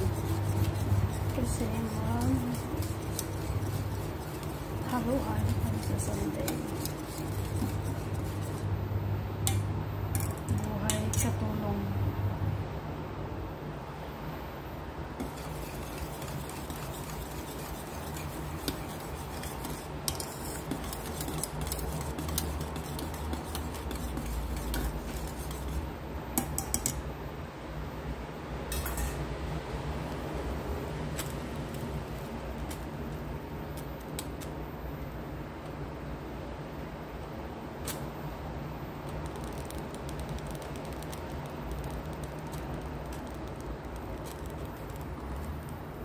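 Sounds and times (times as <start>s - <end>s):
spoon stirring liquid in pot: 0.0s - 8.7s, 15.2s - 27.0s
steady low hum: 0.0s - 46.0s.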